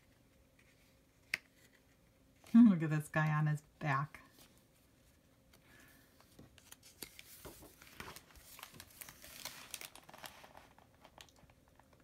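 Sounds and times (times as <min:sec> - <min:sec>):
book page turning: 0:06.2 - 0:11.5.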